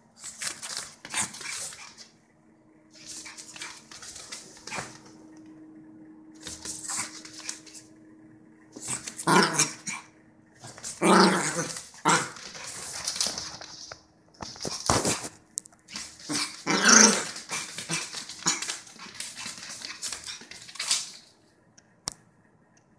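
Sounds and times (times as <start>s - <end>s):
small dog barking and growling: 8.8s - 13.1s, 15.9s - 21.2s.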